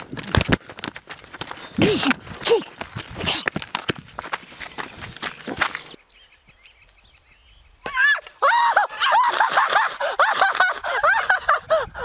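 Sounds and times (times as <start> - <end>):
high-pitched shrieking laughter: 8.0 - 12.0.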